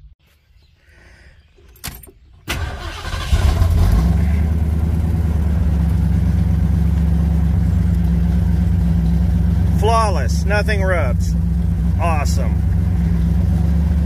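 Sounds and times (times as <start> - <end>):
car starter cranking: 1.6 - 6.7
car engine idling: 2.5 - 14.0.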